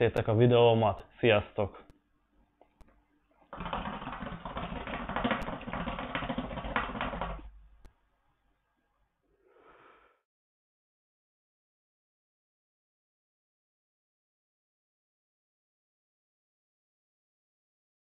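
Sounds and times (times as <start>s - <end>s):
person exhaling: 9.3s - 10.3s.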